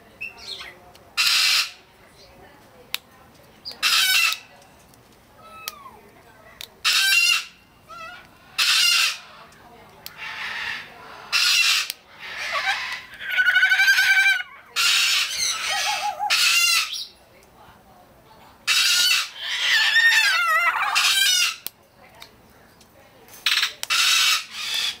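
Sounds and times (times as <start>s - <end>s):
cockatoo screeching: 6.8s - 9.3s, 10.2s - 17.1s, 18.7s - 21.6s.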